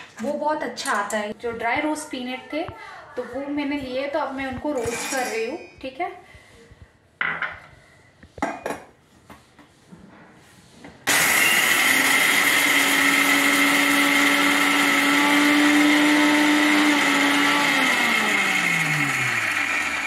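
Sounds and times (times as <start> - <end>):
mixer grinder motor grinding: 11.1 - 20.0.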